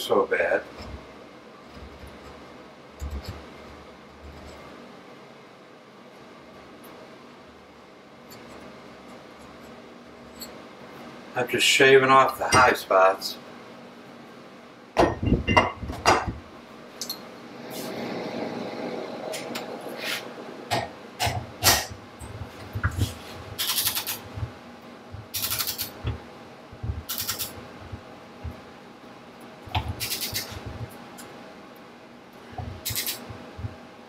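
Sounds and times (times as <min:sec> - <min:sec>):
torque wrench ratcheting: 0:23.6 - 0:24.2, 0:25.3 - 0:26.0, 0:27.1 - 0:27.5, 0:32.8 - 0:33.2.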